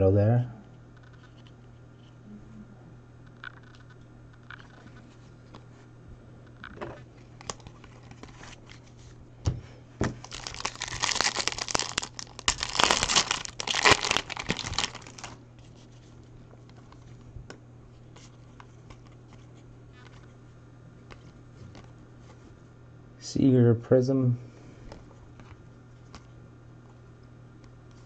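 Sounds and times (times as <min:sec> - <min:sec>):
foil wrapper crinkling and tearing: 0:07.4 - 0:08.8, 0:10.2 - 0:16.0.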